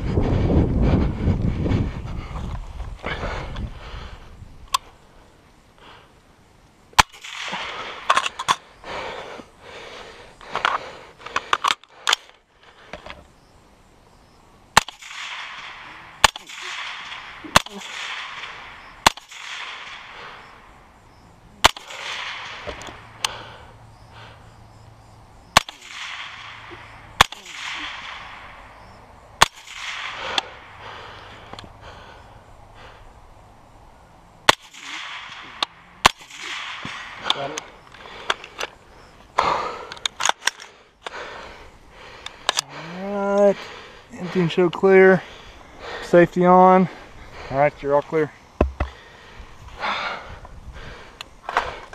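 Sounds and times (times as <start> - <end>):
rifle shots: 7.0 - 8.5, 14.8 - 20.7, 21.6 - 23.2, 25.5 - 28.7, 29.4 - 30.7, 34.4 - 37.7.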